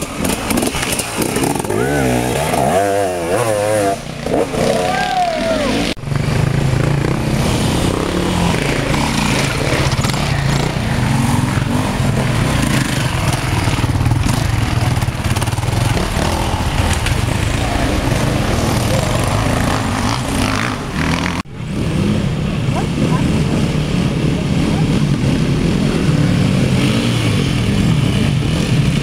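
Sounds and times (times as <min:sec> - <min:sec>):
dirt bike engine revving hard: 0:00.0 - 0:22.2, 0:22.8 - 0:29.0.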